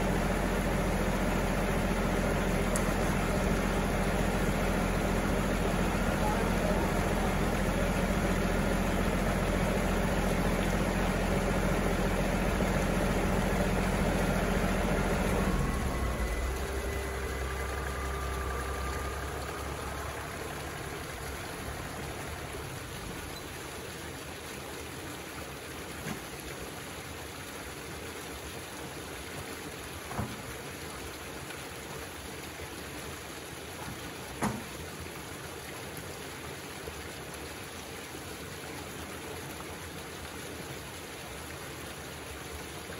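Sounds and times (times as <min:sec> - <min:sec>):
tractor diesel engine idling: 0:00.0 - 0:23.7
water trickling down a trench: 0:00.0 - 0:42.9.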